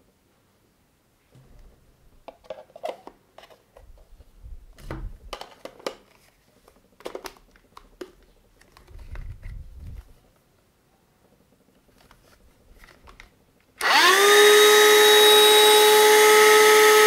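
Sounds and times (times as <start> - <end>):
plastic clicks and scrapes: 2.3 - 4.1, 5.3 - 10.4, 11.7 - 13.4.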